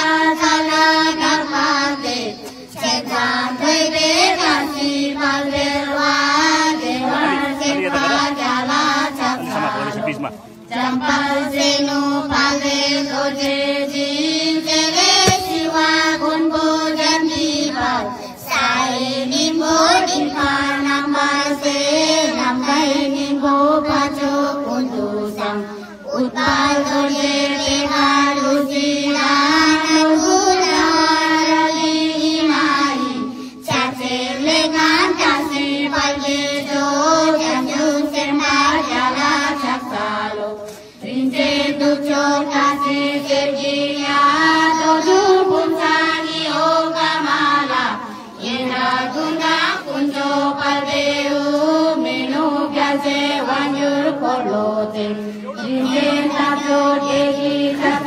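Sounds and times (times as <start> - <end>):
girls chanting prayers: 0.0 - 58.0.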